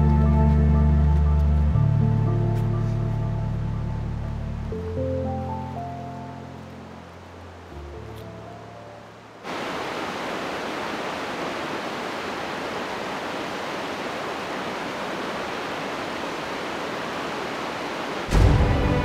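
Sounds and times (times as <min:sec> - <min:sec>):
fast-flowing water rushing: 0:05.9 - 0:19.0.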